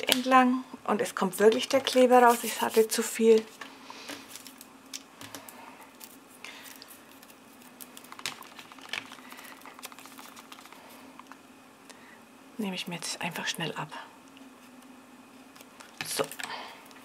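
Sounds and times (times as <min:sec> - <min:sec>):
faint steady hum: 0:00.0 - 0:17.0
rapid scratching: 0:07.8 - 0:11.1
paper rustling and taps: 0:07.9 - 0:10.8.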